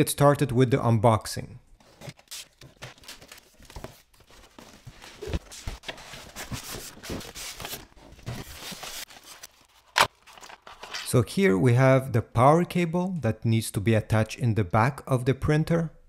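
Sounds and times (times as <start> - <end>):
cardboard scraping and rustling: 1.8 - 11.1.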